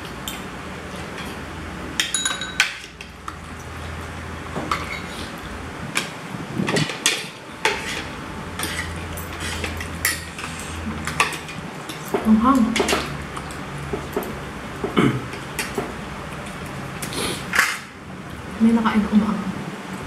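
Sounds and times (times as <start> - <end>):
steady low hum: 0.0 - 20.0
cutlery clinking on plates: 2.0 - 3.1, 4.6 - 5.3, 6.0 - 15.9.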